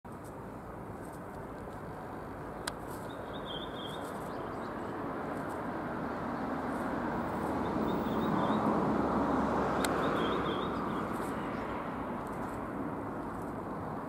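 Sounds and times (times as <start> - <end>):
distant traffic rumble: 0.1 - 14.0
thin high bird call: 2.9 - 4.8.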